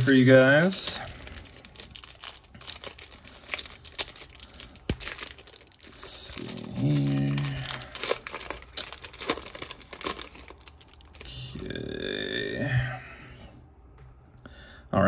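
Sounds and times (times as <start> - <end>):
foil wrapper tearing and crinkling: 0.0 - 11.5.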